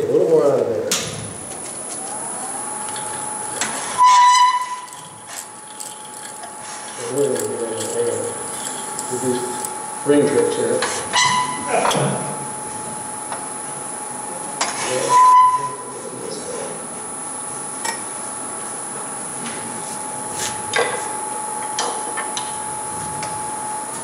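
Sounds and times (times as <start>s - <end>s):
wood lathe whine: 1.6s - 10.2s.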